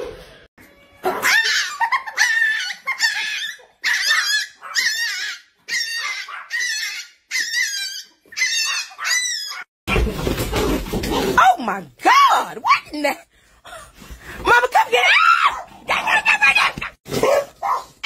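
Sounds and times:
puppy yapping: 1.1s - 9.7s.

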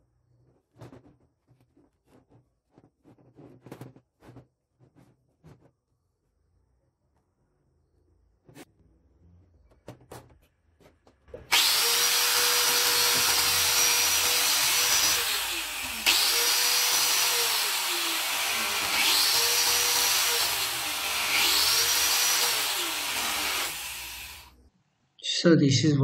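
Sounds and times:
angle grinder whining: 11.5s - 24.6s.

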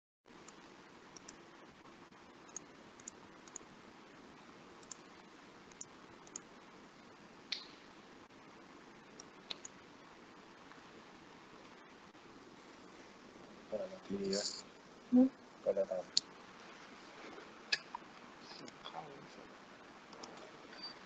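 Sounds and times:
steady low hiss: 0.3s - 21.0s
faint clicks: 0.4s - 1.4s, 2.5s - 3.7s, 4.8s - 5.1s, 5.7s - 6.5s, 9.1s - 9.8s.

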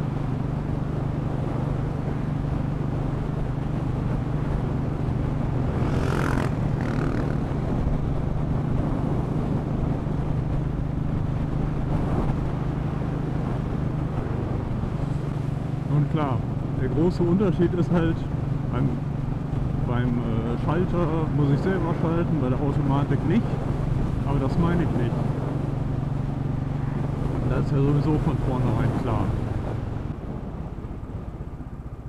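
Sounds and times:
motorcycle engine running: 0.0s - 15.8s
road noise: 0.0s - 32.0s.

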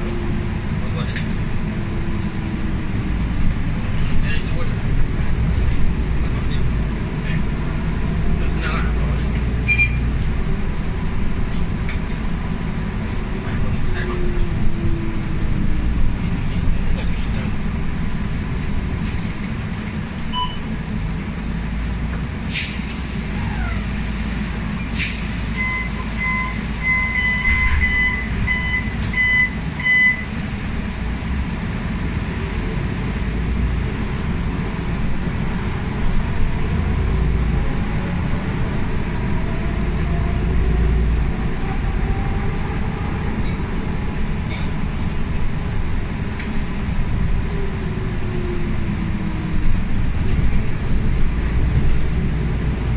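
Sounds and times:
bus engine rumble: 0.0s - 52.9s
electronic warning beeps: 20.3s - 20.6s, 25.6s - 30.2s.

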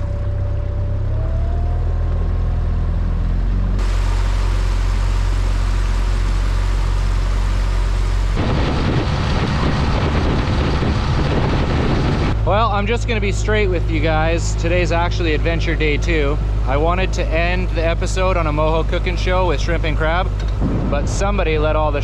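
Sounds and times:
rush of water and wind: 3.8s - 12.9s
outboard motor running: 3.8s - 21.5s.

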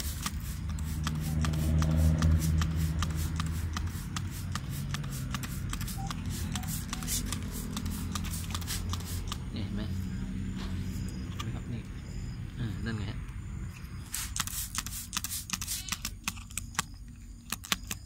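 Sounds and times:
spray bottle squirting: 0.0s - 9.5s, 14.1s - 16.7s
steady low hum: 0.0s - 17.5s.

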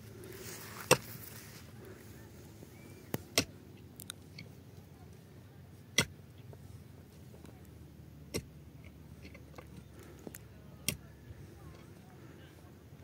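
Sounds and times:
pickaxe striking earth: 0.8s - 1.2s, 3.1s - 3.5s, 5.9s - 6.2s, 8.3s - 8.5s, 10.8s - 11.0s.

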